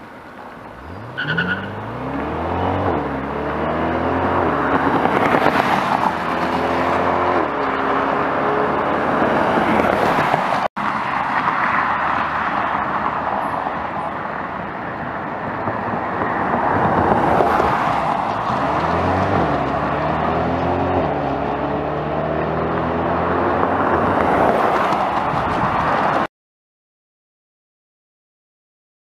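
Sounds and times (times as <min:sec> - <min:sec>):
car engine accelerating hard: 0:00.8 - 0:10.2, 0:16.6 - 0:25.8
tyre and wind noise: 0:01.8 - 0:11.4, 0:13.1 - 0:26.3.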